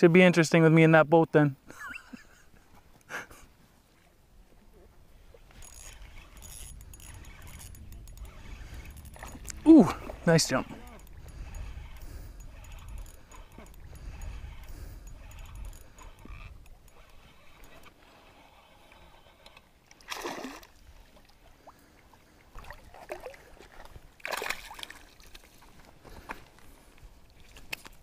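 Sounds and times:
fish splashing in water: 19.9 - 20.8, 22.6 - 25.5.

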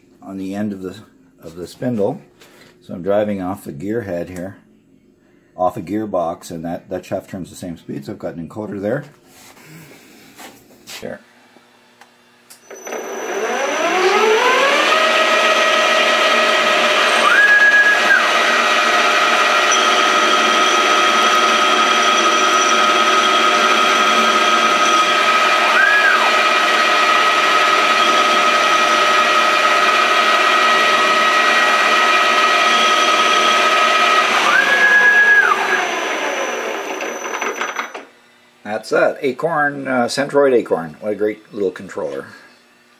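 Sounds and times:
brief rising and falling whines: 12.6 - 38.1
lathe spindle motor whining: 12.6 - 38.2.

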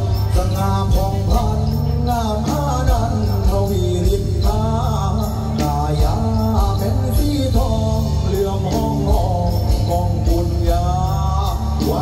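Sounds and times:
loud live stage music: 0.0 - 12.0.

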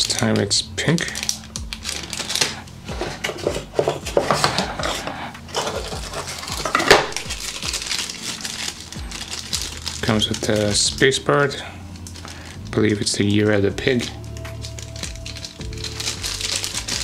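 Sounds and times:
plastic packaging crinkling: 0.0 - 17.0.

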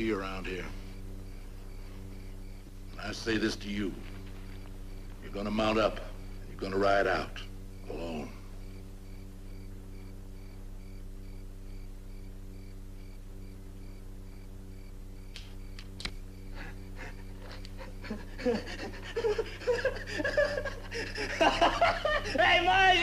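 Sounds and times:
pulsing high chirp: 0.0 - 23.0
television soundtrack hum: 0.0 - 23.0
heavy breathing: 16.5 - 21.4.

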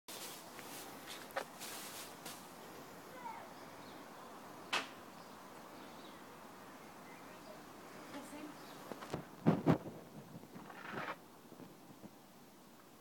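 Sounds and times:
faint outdoor background: 0.1 - 13.0.

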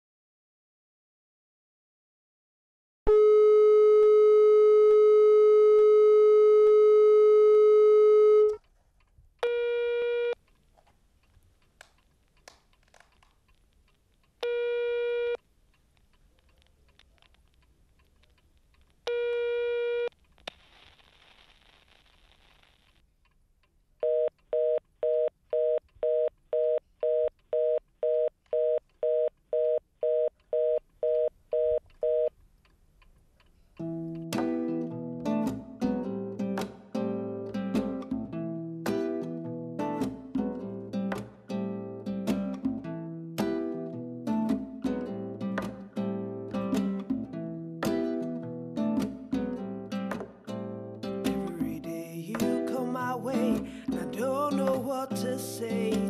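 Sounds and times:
busy signal beeps: 3.1 - 8.6
telephone dial tone: 3.1 - 8.6, 9.4 - 10.4, 14.4 - 15.4, 24.0 - 32.3
telephone ringing tones: 3.1 - 8.6, 9.4 - 10.4, 14.4 - 15.4.

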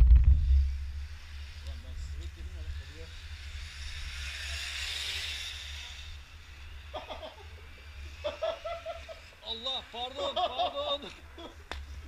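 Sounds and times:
low rumble: 0.0 - 7.0
radio-controlled car whirring: 0.3 - 12.0
voices: 1.2 - 12.0.

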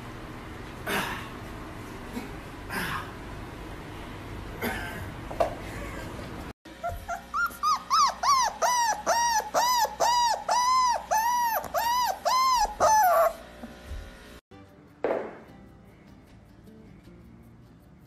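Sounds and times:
young animal whimpering: 6.7 - 13.4.

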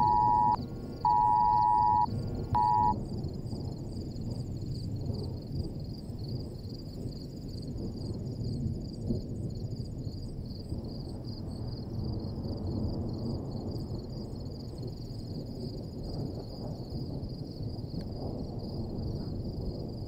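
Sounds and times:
faint high-pitched chirping: 0.0 - 3.0.

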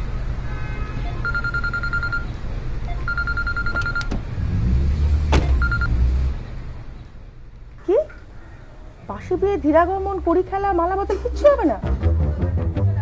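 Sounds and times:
telephone ringing: 1.1 - 2.3, 3.0 - 4.1, 5.6 - 5.9.

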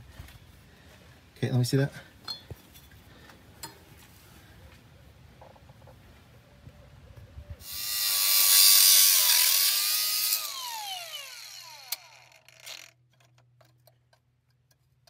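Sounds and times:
angle grinder grinding metal: 7.6 - 13.0.

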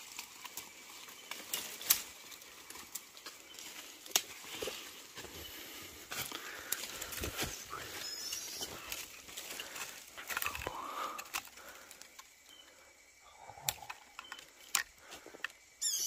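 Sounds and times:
dry leaves and twigs rustling: 0.0 - 16.0
sharp clicks and snaps: 13.6 - 15.6.

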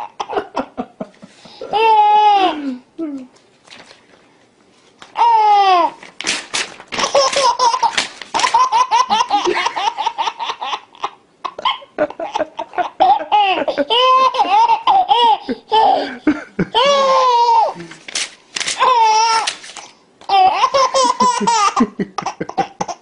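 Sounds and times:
baby laughing: 0.0 - 0.8, 1.6 - 2.6, 7.0 - 17.8, 18.8 - 19.6, 20.3 - 23.0
paper tearing: 6.0 - 8.7, 17.8 - 20.0.

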